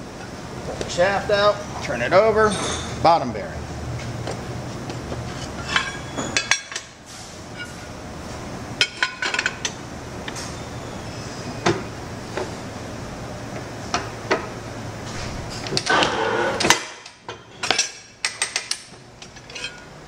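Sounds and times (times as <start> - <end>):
steel parts clanking: 17.4 - 19.9.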